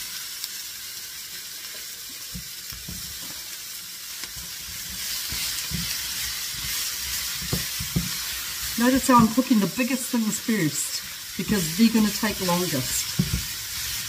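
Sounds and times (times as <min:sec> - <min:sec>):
vegetables sizzling in a frying pan: 0:00.0 - 0:14.0
wooden spatula knocking on pan: 0:07.3 - 0:08.2, 0:09.0 - 0:09.5, 0:13.1 - 0:13.5.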